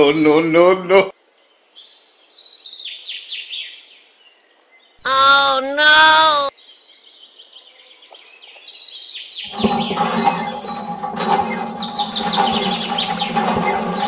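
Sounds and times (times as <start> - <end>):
water pump humming: 9.5 - 14.0.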